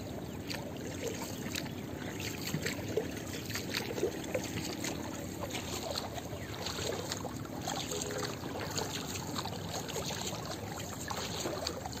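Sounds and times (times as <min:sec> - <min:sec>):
water lapping against boat hull: 0:00.0 - 0:12.0
water splashing around paddle: 0:00.0 - 0:12.0.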